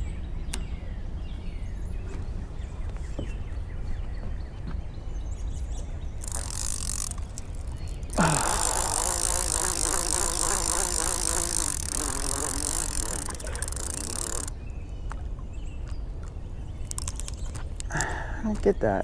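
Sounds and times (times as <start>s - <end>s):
fishing reel spool whirring: 6.2s - 14.5s, 16.8s - 18.1s
light reel clicks: 6.2s - 14.5s, 16.8s - 18.2s.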